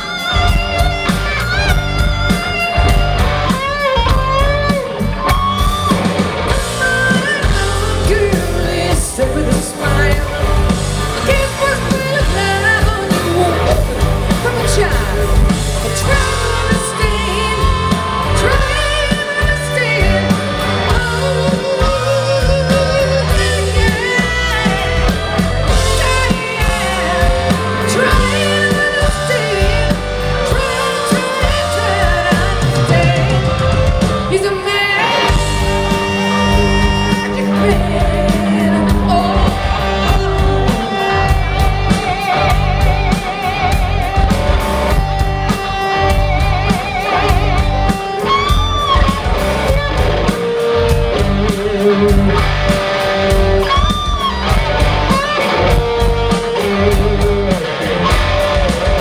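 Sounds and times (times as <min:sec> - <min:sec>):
live rock band: 0:00.0 - 0:59.0
woman singing with vibrato: 0:06.7 - 0:10.5, 0:11.2 - 0:42.6.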